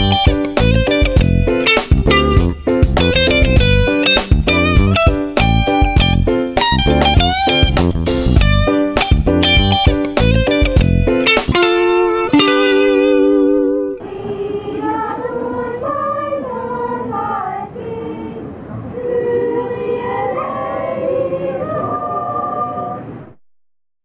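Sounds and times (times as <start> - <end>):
held musical chord: 0.0 - 14.6
children's choir singing: 14.0 - 23.2.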